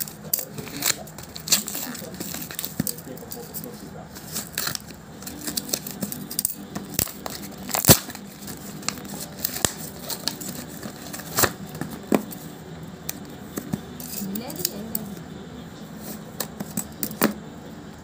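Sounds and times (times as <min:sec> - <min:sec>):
cardboard tearing and crinkling: 0:00.0 - 0:12.4.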